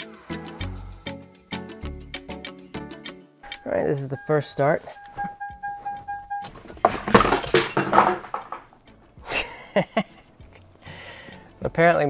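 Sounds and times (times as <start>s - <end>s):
car warning chime beeping: 3.5s - 6.6s.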